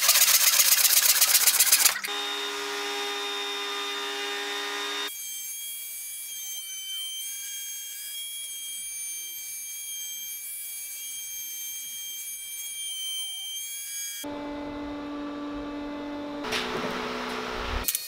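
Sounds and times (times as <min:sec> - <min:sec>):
router bit cutting into wood: 0:02.0 - 0:05.5
router whining: 0:02.0 - 0:18.0.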